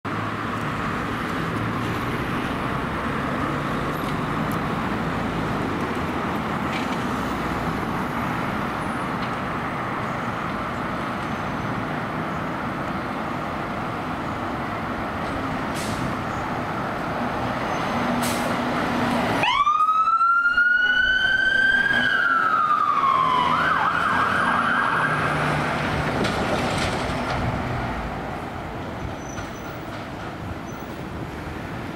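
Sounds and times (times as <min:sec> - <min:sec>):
traffic noise: 0:00.0 - 0:31.9
fire engine siren: 0:18.2 - 0:27.3.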